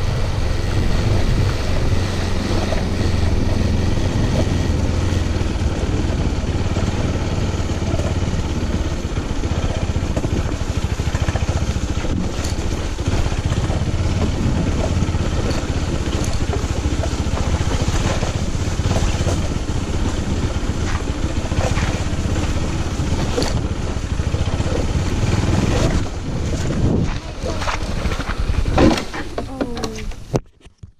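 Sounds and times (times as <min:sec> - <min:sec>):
small motorcycle engine running: 0:00.0 - 0:30.4
knocks and rattles from bumps: 0:24.3 - 0:30.9.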